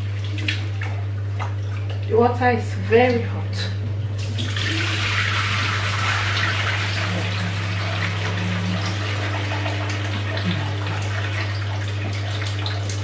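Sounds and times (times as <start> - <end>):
constant low hum: 0.0 - 13.0
water splashing into metal sink: 4.2 - 13.0.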